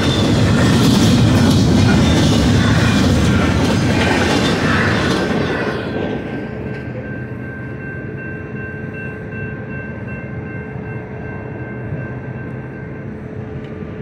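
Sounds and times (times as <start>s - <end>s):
train rumbling: 0.0s - 14.0s
crossing signal bell ringing: 6.2s - 14.0s.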